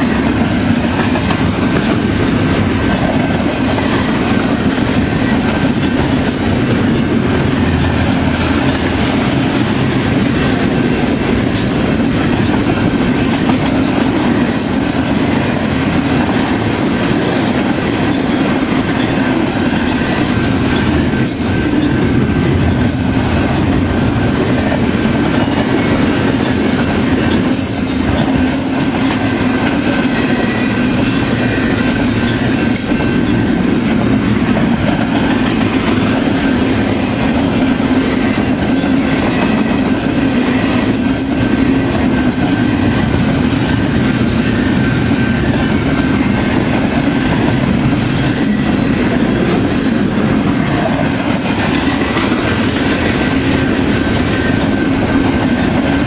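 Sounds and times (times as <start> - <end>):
train wheels rumbling on rail: 0.0 - 56.0
wheels clicking on rail: 0.0 - 56.0.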